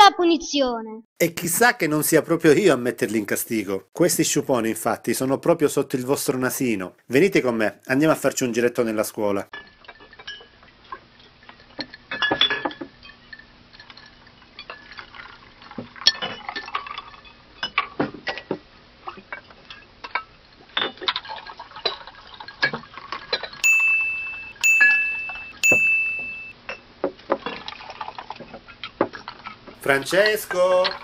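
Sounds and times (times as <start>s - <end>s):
dishes and cutlery clinking: 9.5s - 11.0s, 11.6s - 14.1s, 22.6s - 27.6s
chime-like dings: 23.6s - 26.5s.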